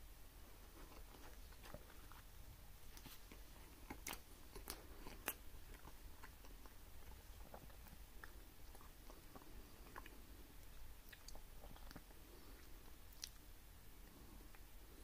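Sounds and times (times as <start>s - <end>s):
person chewing: 0.6s - 2.3s, 2.9s - 14.7s.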